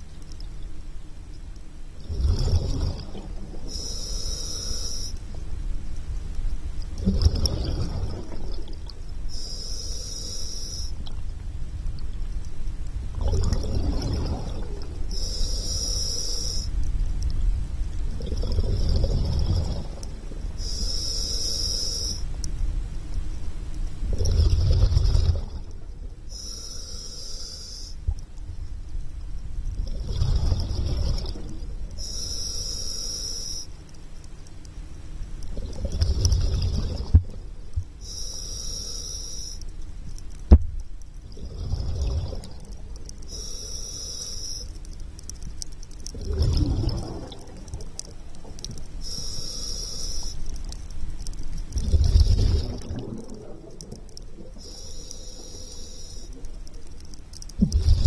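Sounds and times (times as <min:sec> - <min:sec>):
scuba regulator breathing: 0:03.6 - 0:05.2, 0:09.3 - 0:11.0, 0:15.1 - 0:16.8, 0:20.6 - 0:22.3, 0:26.3 - 0:28.0, 0:32.0 - 0:33.8, 0:38.0 - 0:39.7, 0:41.6 - 0:44.9, 0:48.0 - 0:50.6, 0:54.1 - 0:58.0.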